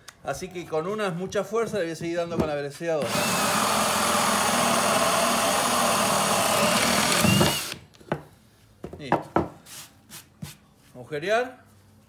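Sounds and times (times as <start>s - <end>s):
drill boring through wood: 3.0s - 7.8s.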